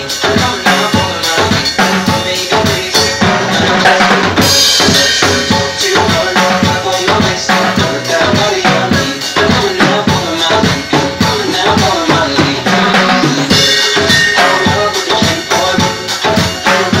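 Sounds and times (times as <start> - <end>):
cymbal crash: 4.3 - 6.6, 13.3 - 17.0
timbales played with sticks: 11.2 - 17.0.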